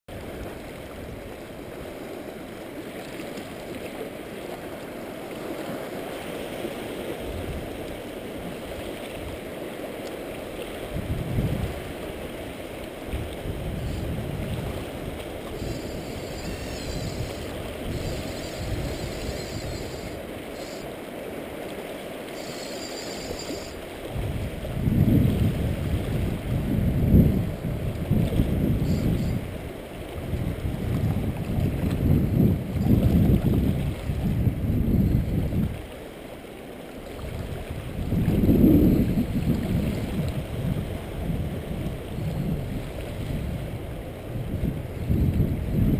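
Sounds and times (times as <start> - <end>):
wind gusting on microphone: 10.8 - 21.0, 22.4 - 35.9, 37.2 - 45.9.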